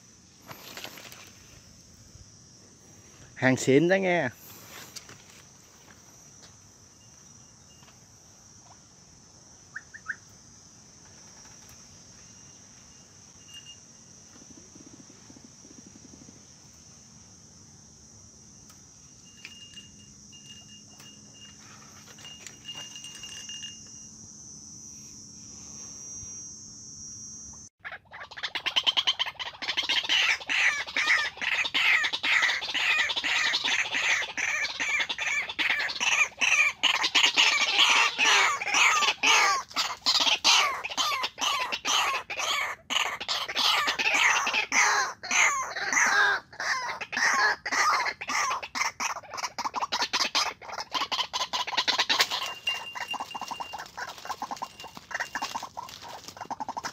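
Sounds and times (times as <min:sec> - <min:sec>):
insect hiss: 0:00.0 - 0:56.9
bird calling rapid notes: 0:49.9 - 0:56.9.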